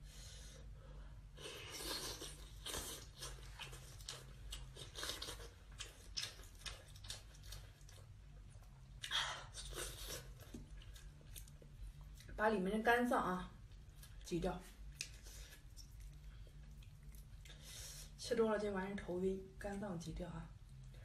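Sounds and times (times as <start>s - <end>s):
person chewing wetly: 1.6s - 12.3s, 14.9s - 17.7s.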